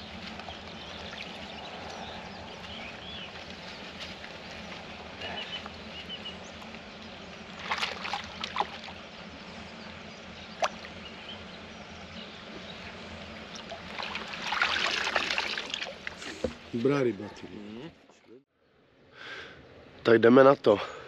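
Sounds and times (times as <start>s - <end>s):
fish splashing: 7.6s - 9.0s, 13.5s - 16.4s
water sloshing and splashing: 7.6s - 9.0s, 13.4s - 16.6s.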